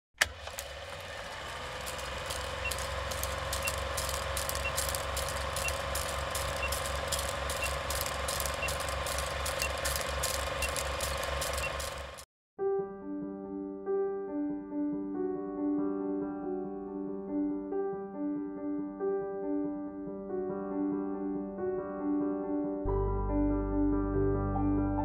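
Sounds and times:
film crackle: 0:00.2 - 0:12.2
film projector clatter: 0:00.2 - 0:12.3
steady hum: 0:01.7 - 0:12.2
short high beeps: 0:03.5 - 0:09.9, 0:10.5 - 0:12.0.

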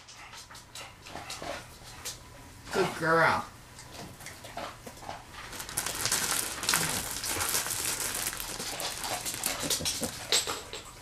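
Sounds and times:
plastic bag crinkling: 0:05.3 - 0:10.6.

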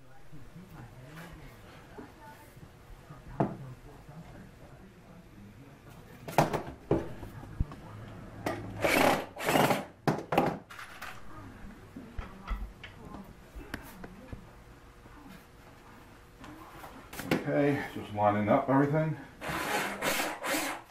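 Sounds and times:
power drill driving screws: 0:08.8 - 0:09.9, 0:19.4 - 0:20.8.

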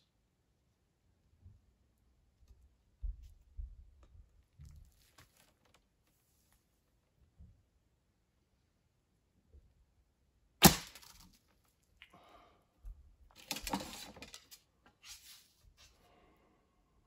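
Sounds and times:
bow and arrows rustling and clattering: 0:04.6 - 0:06.7, 0:13.4 - 0:16.0.

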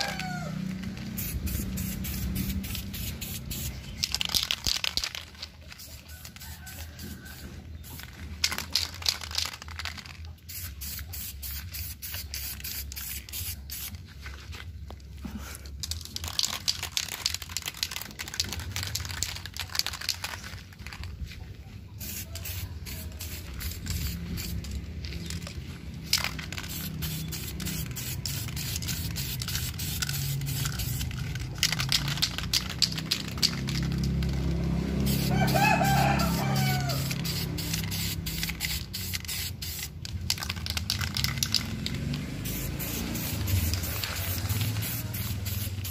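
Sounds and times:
aerosol spray can hissing: 0:00.0 - 0:08.0, 0:10.4 - 0:14.0, 0:22.0 - 0:24.8, 0:26.1 - 0:34.3, 0:34.9 - 0:45.9.

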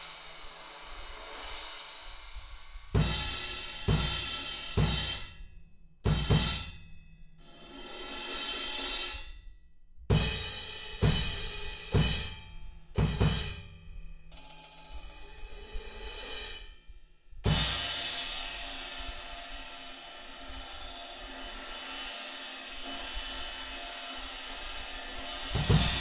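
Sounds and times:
cymbal wash: 0:00.0 - 0:05.2, 0:17.5 - 0:26.0
bass drum: 0:02.4 - 0:06.9, 0:13.0 - 0:13.9, 0:25.4 - 0:26.0.

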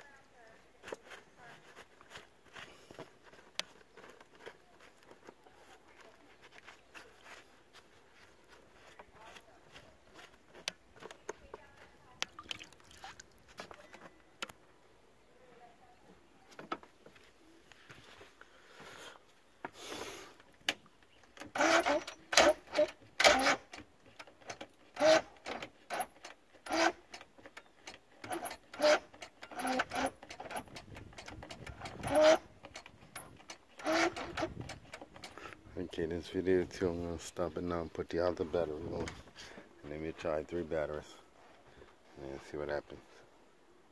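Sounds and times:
clicks and rattles of handling: 0:00.8 - 0:12.4, 0:20.4 - 0:35.7.

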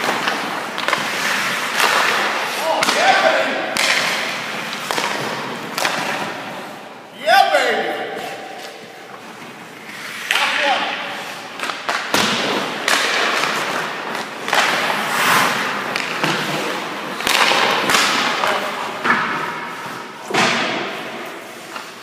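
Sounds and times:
skate blades scraping ice: 0:00.0 - 0:02.8, 0:03.8 - 0:06.8, 0:08.1 - 0:22.0
sticks cracking on pucks: 0:00.0 - 0:06.5, 0:10.2 - 0:19.4
pucks thudding off pads and boards: 0:00.0 - 0:07.0, 0:07.8 - 0:22.0.

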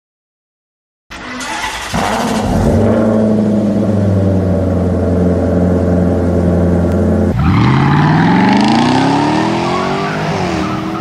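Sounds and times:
car engine running at low revs: 0:01.9 - 0:09.9.

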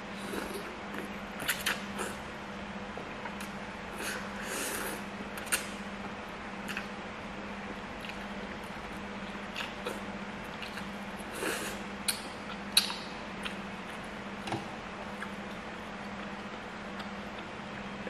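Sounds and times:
steady low hum: 0:00.0 - 0:18.0
mouth clicks and smacks: 0:12.1 - 0:13.6.

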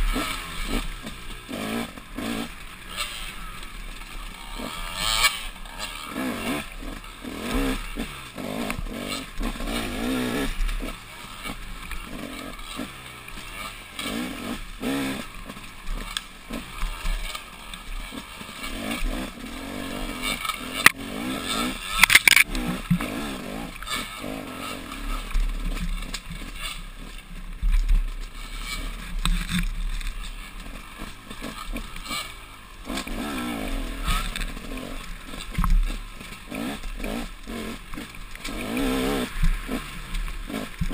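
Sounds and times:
sharp crack: 0:00.0 - 0:26.9
dirt bike engine revving: 0:00.0 - 0:40.9
knocks and scrapes from ground: 0:00.0 - 0:40.9.

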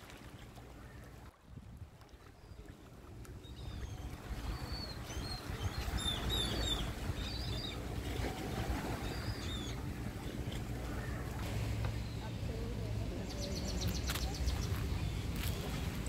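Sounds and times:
wind rumbling on microphone: 0:00.8 - 0:12.6.

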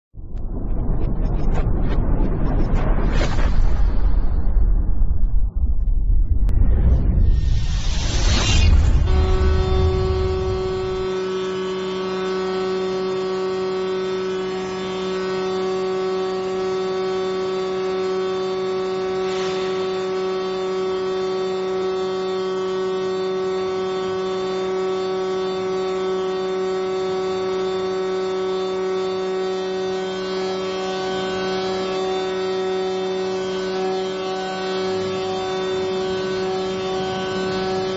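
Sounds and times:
low electrical hum: 0:07.6 - 0:14.7.

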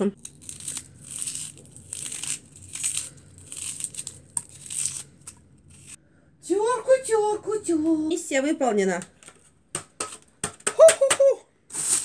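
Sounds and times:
onion skin crackling and tearing: 0:00.2 - 0:06.0.

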